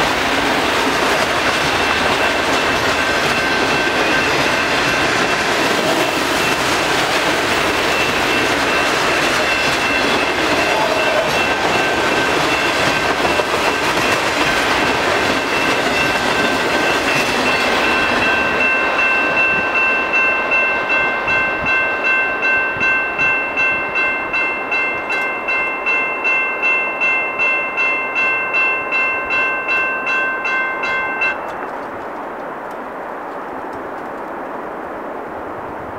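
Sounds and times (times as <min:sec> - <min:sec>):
freight train wheels clattering: 0:00.0 - 0:26.0
crossing bell ringing: 0:00.0 - 0:31.8.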